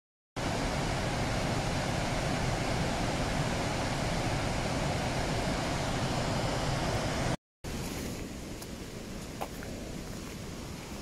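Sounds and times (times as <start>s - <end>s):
waterfall rushing: 0.4s - 7.9s.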